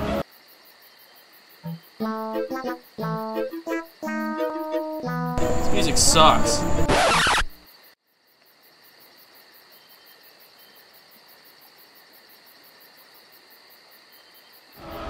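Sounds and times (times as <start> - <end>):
crickets chirping: 0.0 - 15.0
low hiss: 5.4 - 7.6.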